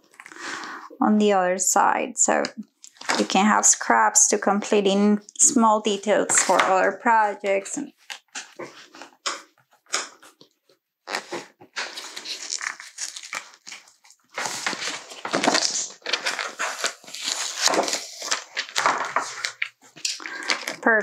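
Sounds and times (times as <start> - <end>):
sheet peeled off sticky mat: 11.1 - 20.8
plastic sheet crinkling: 11.1 - 21.0.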